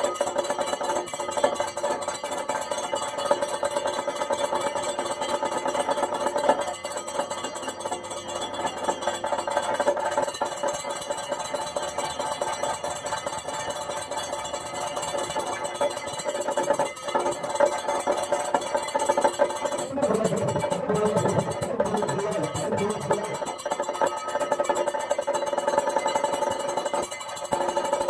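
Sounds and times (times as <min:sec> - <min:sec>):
fast drumming: 0:00.0 - 0:28.0
steady ringing tones: 0:00.0 - 0:28.0.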